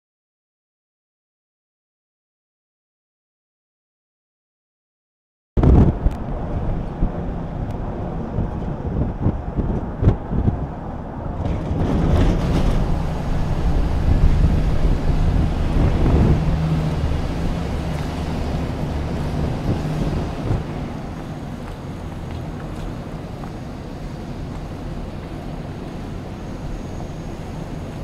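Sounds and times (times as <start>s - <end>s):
car engine hum and tyre noise: 5.6s - 28.0s
wind buffeting microphone: 5.6s - 28.0s.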